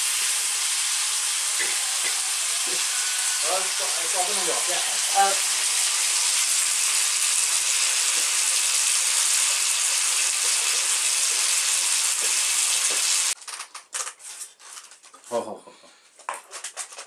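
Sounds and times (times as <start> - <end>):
food sizzling in hot oil: 0.0 - 13.4.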